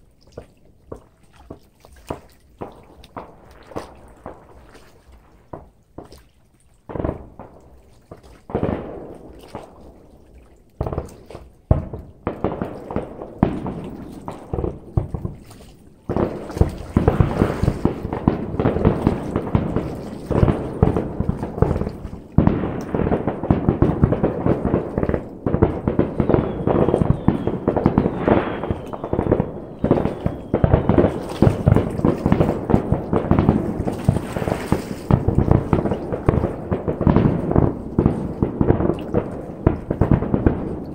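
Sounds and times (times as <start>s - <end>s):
fireworks bangs and crackle: 0.0s - 40.9s
fireworks booming: 0.0s - 40.9s.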